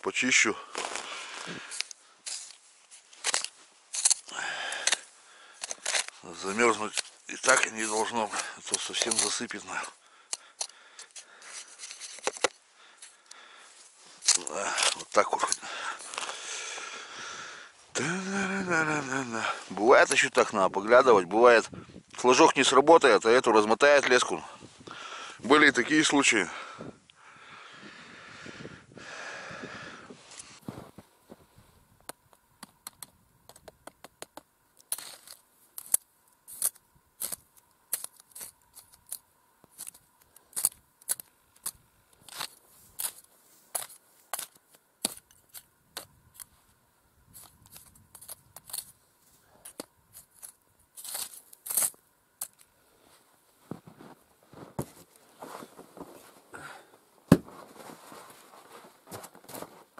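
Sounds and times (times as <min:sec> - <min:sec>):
ice scoop scraping snow: 0:05.7 - 0:09.9, 0:11.2 - 0:12.6, 0:34.9 - 0:37.4, 0:42.2 - 0:45.6, 0:47.3 - 0:53.2.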